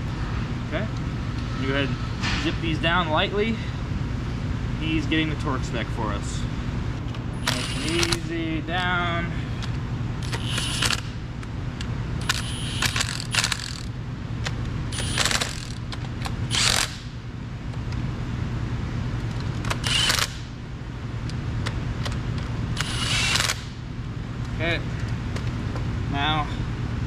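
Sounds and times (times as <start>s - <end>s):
low shop hum: 0.0s - 27.0s
cordless driver spinning bolts: 7.4s - 8.3s, 10.2s - 11.1s, 12.2s - 14.0s, 15.0s - 17.1s, 19.3s - 20.5s, 22.8s - 23.7s.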